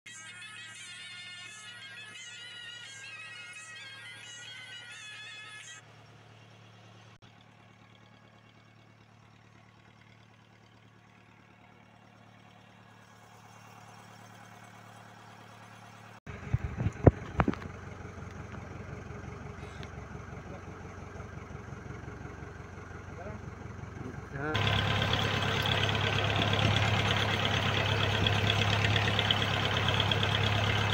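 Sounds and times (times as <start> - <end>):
boat engine humming: 1.8 - 30.9.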